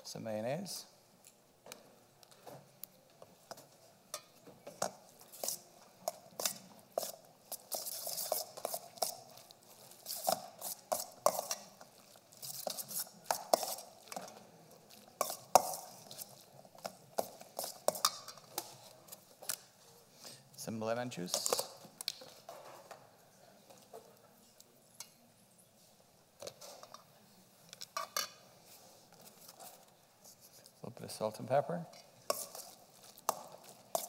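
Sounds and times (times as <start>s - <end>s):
spoon scraping metal bowl: 4.1s - 14.4s, 15.0s - 19.6s, 31.9s - 34.0s.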